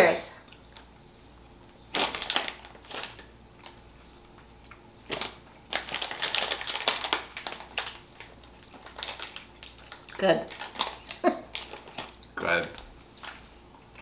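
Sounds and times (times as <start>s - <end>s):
plastic bag crinkling: 1.9s - 3.8s, 5.0s - 14.0s.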